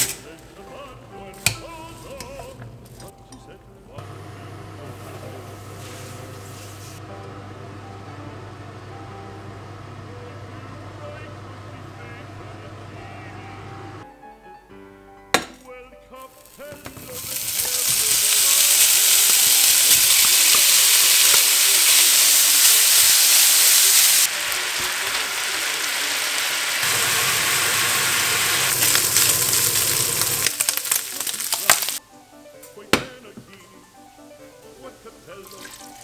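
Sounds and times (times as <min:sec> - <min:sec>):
bacon sizzling in a pan: 0:05.0 - 0:07.1, 0:16.3 - 0:32.0.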